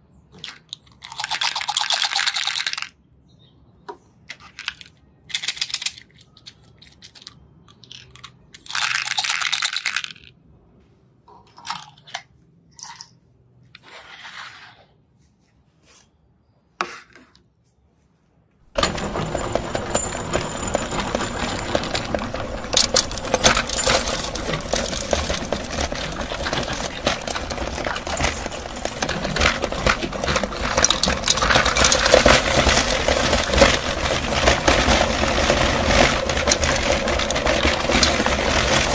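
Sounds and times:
hard candies rattling onto plate: 0:18.7 - 0:38.9
meat grinder crunching candies: 0:18.7 - 0:38.9.

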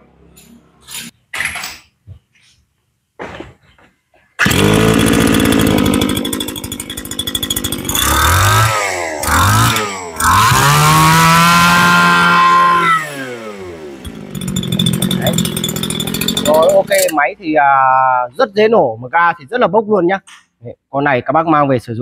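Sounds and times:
brush-cutter engine revving: 0:04.4 - 0:17.2.

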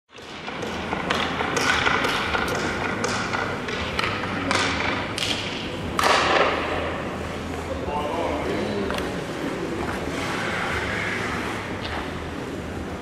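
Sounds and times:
hockey pucks hitting boards: 0:00.1 - 0:07.0
steady low hum: 0:00.3 - 0:13.0.

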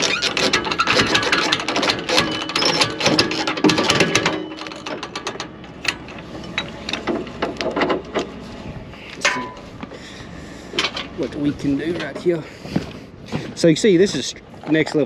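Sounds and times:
winch ratchet clicking: 0:00.0 - 0:07.2.

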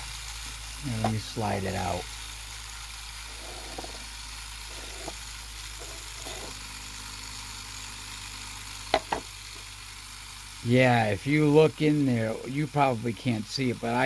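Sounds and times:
motor humming: 0:00.0 - 0:14.0.

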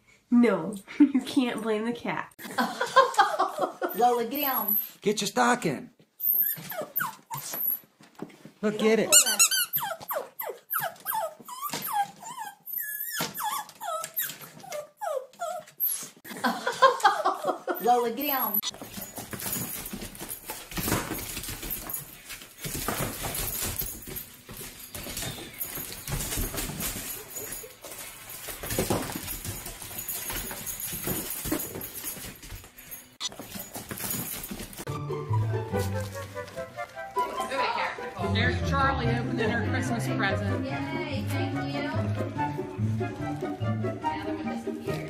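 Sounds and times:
dog whining and yelping: 0:06.1 - 0:07.9, 0:09.1 - 0:16.3, 0:24.8 - 0:28.3.

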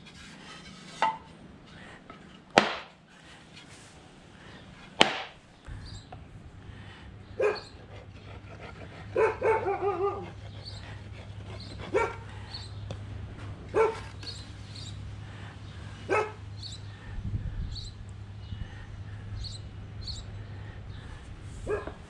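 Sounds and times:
steady low hum: 0:00.0 - 0:22.0
dog barking and yelping: 0:07.4 - 0:07.9, 0:08.8 - 0:10.8, 0:11.6 - 0:12.3, 0:13.7 - 0:14.1, 0:16.1 - 0:16.4, 0:21.7 - 0:22.0.

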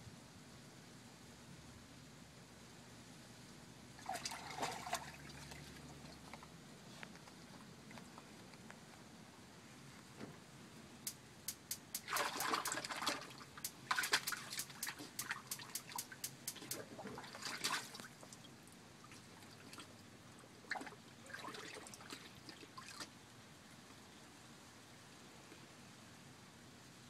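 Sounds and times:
water splashing in dog bowl: 0:04.0 - 0:06.3, 0:11.9 - 0:18.4, 0:20.7 - 0:23.1.

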